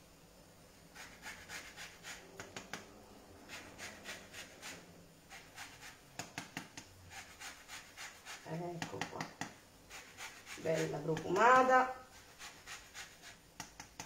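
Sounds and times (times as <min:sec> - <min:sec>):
lemon rind grated on grater: 0:01.0 - 0:02.7, 0:03.4 - 0:06.0, 0:07.1 - 0:08.6, 0:09.9 - 0:13.4.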